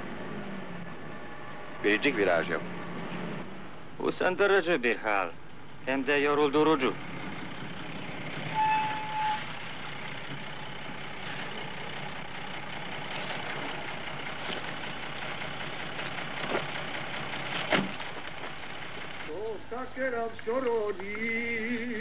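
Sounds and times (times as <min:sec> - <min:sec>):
truck engine and tyres: 0:00.0 - 0:22.0
short high tone: 0:08.5 - 0:09.6.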